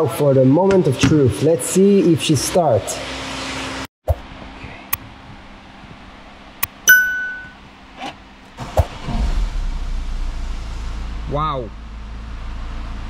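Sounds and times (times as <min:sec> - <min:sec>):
dashboard warning chime: 0:06.6 - 0:07.6
diesel engine starting and idling: 0:08.6 - 0:13.0.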